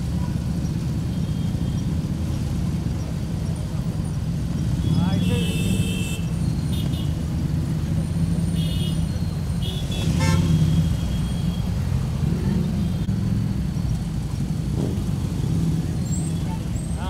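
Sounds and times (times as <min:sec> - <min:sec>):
motorcycles rumbling: 0:00.0 - 0:17.0
vehicle horn blast: 0:04.8 - 0:07.2, 0:08.6 - 0:11.1.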